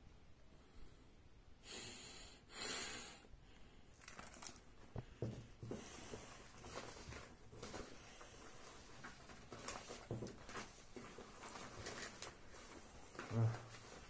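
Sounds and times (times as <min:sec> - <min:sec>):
handling clicks and rustles: 0:05.6 - 0:14.0.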